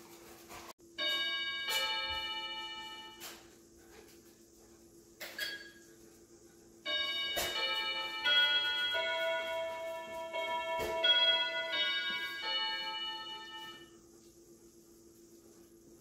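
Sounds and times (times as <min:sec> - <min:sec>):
electronic doorbell chime melody: 0:01.0 - 0:03.4, 0:06.9 - 0:13.9.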